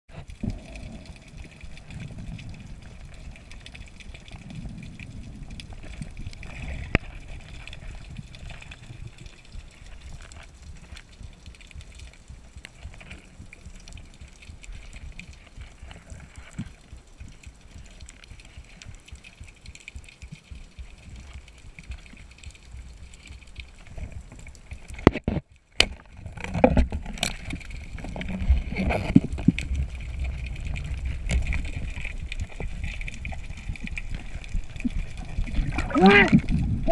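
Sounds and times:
muffled underwater rumble: 0:00.1 - 0:36.9
rushing water: 0:00.1 - 0:36.9
faint clicks: 0:00.2 - 0:36.9.

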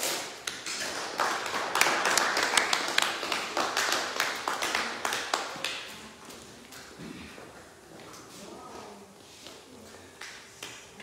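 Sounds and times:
hand clapping: 0:00.0 - 0:06.9, 0:10.2 - 0:11.0.

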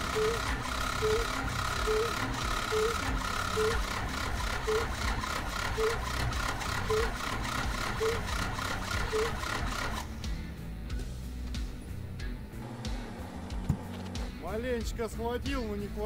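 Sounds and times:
short repeating tone: 0:00.0 - 0:04.0
diesel engine cranking: 0:00.0 - 0:10.2.

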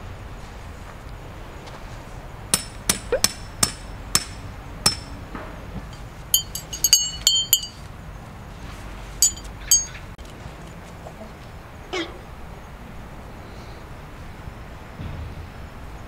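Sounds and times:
hard objects knocking: 0:05.8 - 0:07.8
ringing metallic clinks: 0:05.9 - 0:07.9, 0:09.2 - 0:10.1.

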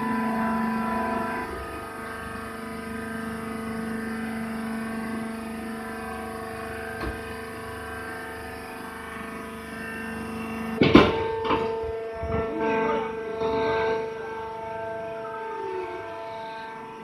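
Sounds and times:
hydraulic pump motor humming: 0:00.0 - 0:17.0
loud knock: 0:10.8 - 0:11.8.

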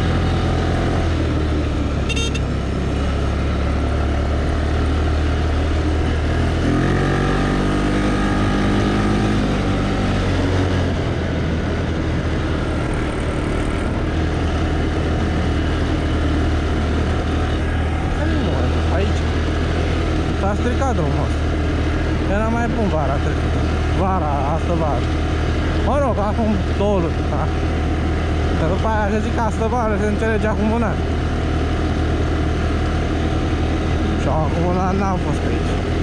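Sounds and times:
small engine running: 0:12.5 - 0:14.3.

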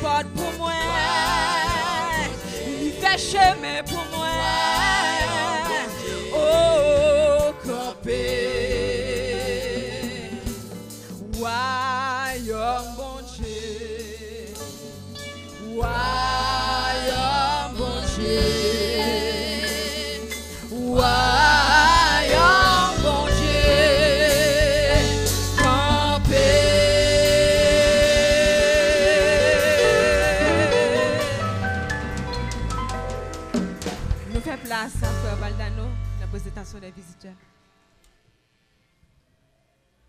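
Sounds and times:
woman singing gospel song: 0:00.0 - 0:14.6, 0:15.6 - 0:31.7
backing music: 0:00.0 - 0:37.4.

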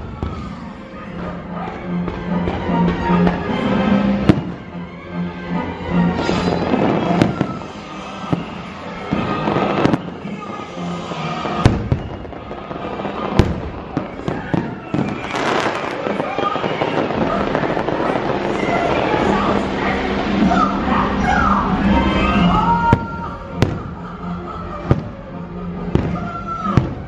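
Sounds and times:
music: 0:00.0 - 0:27.0
fireworks bangs: 0:02.1 - 0:04.7, 0:06.2 - 0:20.8, 0:22.2 - 0:24.0, 0:24.8 - 0:25.2, 0:25.9 - 0:27.0
fireworks crackling: 0:06.2 - 0:20.9, 0:22.9 - 0:24.0.

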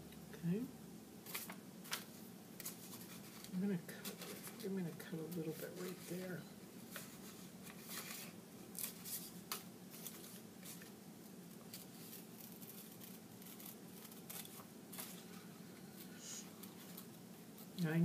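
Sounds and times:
faint low hum: 0:00.0 - 0:18.0
scissors cutting paper: 0:11.7 - 0:15.2.

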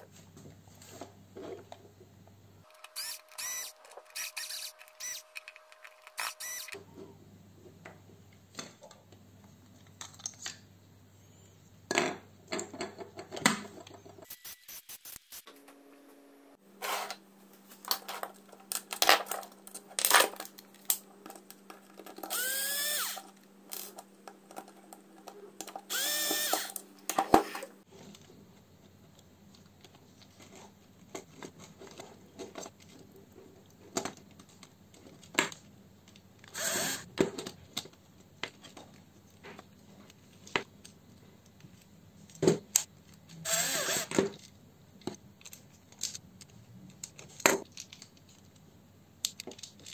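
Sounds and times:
screws and plastic box rattling: 0:02.6 - 0:06.8
electric screwdriver whining: 0:02.7 - 0:06.8, 0:22.2 - 0:23.9, 0:25.8 - 0:26.8, 0:36.5 - 0:37.1, 0:43.4 - 0:44.2.

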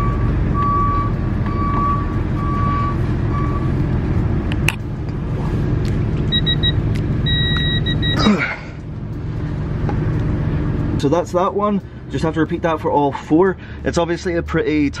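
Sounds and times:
torque adapter beeping: 0:06.3 - 0:08.2.

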